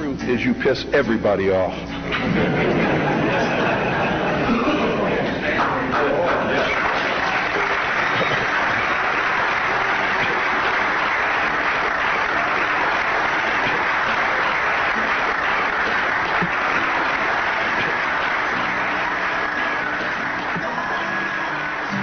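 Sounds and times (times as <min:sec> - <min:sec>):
music: 0:00.0 - 0:22.0
audience applauding: 0:02.4 - 0:22.0.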